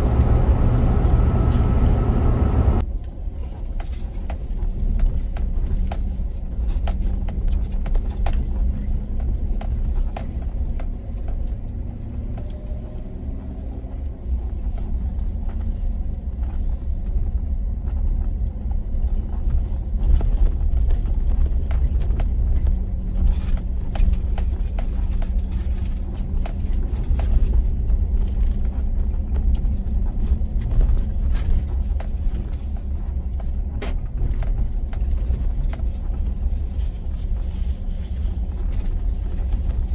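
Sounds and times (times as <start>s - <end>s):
vehicle engine and road rumble: 0.0s - 39.9s.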